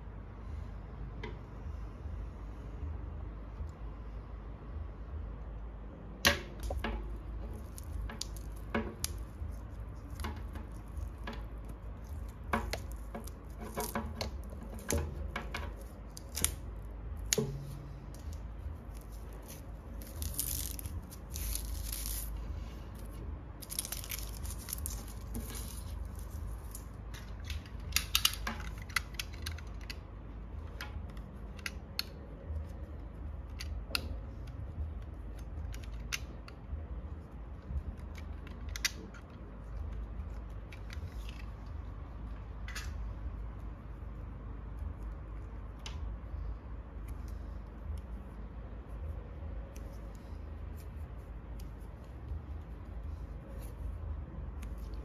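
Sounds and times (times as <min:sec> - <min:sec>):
wire scraping and rustling: 0:06.6 - 0:34.6.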